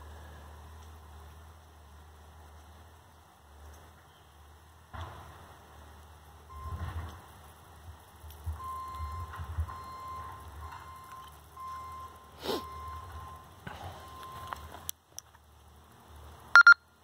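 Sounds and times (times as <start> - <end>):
electronic beeps: 8.6 - 14.7, 16.6 - 16.9.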